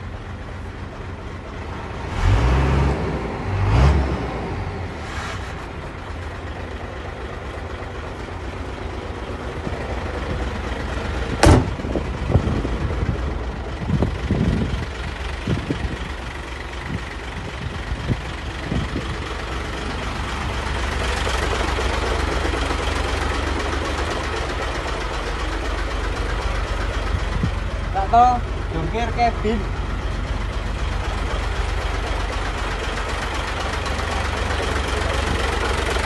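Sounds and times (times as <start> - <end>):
diesel engine idling: 0.0 - 36.0
sharp knock: 11.4 - 11.8.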